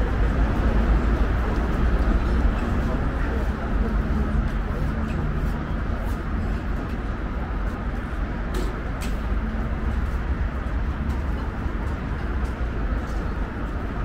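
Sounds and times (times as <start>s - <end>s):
low rumble of traffic: 0.0s - 14.0s.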